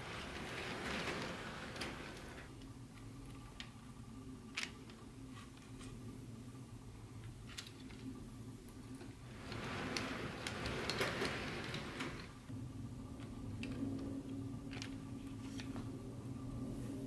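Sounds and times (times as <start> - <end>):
wheels ticking over rail joints: 9.0 - 16.0.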